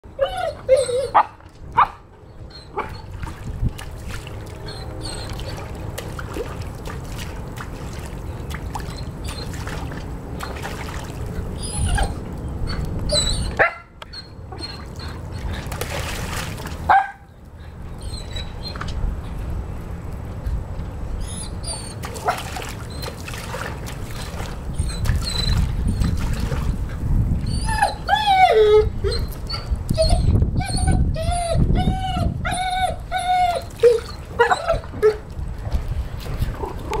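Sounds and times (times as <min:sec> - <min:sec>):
dog whimpering and yipping: 0:00.1 - 0:03.1, 0:04.6 - 0:05.7, 0:11.6 - 0:15.6, 0:18.0 - 0:18.9, 0:21.2 - 0:23.2, 0:24.7 - 0:26.2, 0:27.4 - 0:35.3
paw splashing in water: 0:02.8 - 0:13.8, 0:14.6 - 0:17.3, 0:21.6 - 0:28.1, 0:33.3 - 0:37.0.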